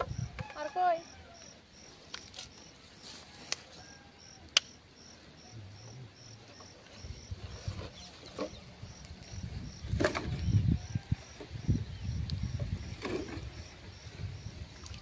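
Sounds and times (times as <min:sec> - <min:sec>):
insect chirping: 0:00.0 - 0:15.0
sharp clicks: 0:04.5 - 0:04.8.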